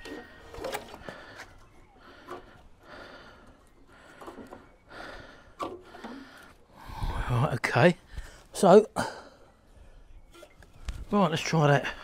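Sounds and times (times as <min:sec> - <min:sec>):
man breathing: 0:00.0 - 0:07.4, 0:08.0 - 0:10.1.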